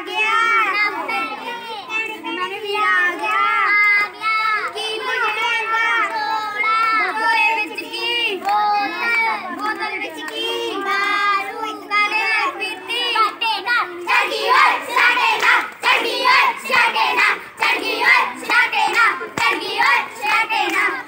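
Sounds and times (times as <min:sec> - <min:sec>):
girls singing folk song: 0:03.0 - 0:21.0
hand claps: 0:08.3 - 0:11.2, 0:14.0 - 0:21.0.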